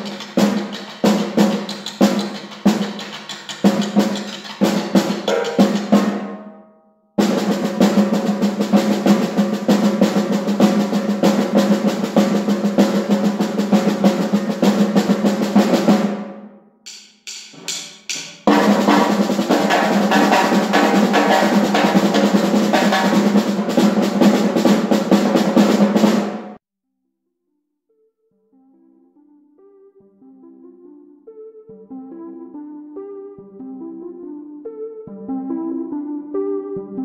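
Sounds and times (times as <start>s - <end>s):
snare drums rapid strokes: 0.0s - 6.4s, 7.2s - 16.2s, 16.9s - 26.6s.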